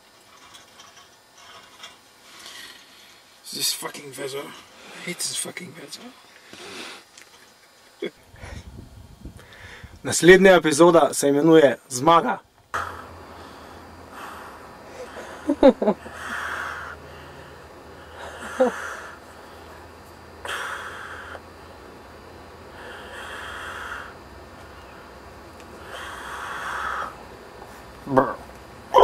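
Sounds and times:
man breathing heavily: 8.3 - 8.8, 9.4 - 10.0, 12.7 - 19.8, 20.4 - 21.6, 22.6 - 24.3, 25.8 - 27.2.

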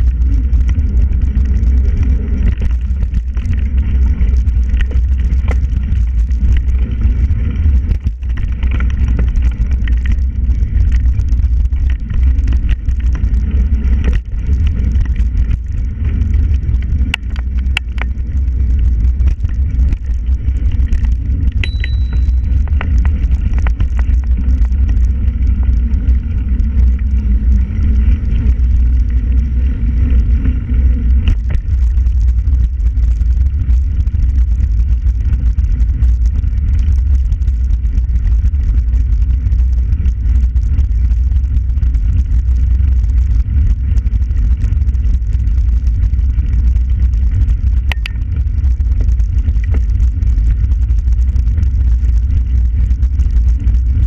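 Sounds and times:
bicycle road noise and rattle: 0.0 - 54.0
wind rumble on microphone: 0.0 - 54.0.

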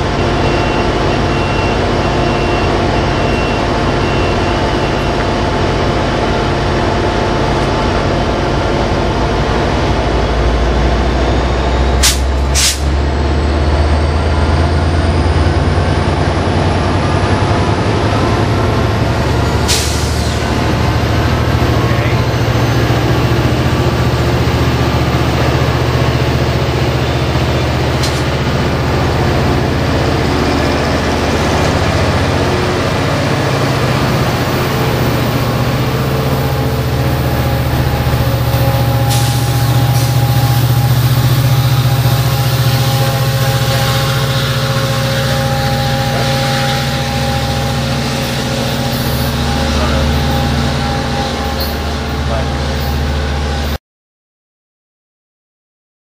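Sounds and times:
diesel locomotive droning: 0.0 - 53.8
steady higher tones: 20.4 - 53.8.

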